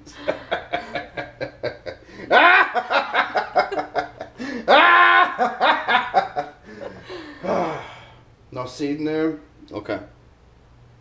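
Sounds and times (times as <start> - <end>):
people laughing: 0.1 - 7.4.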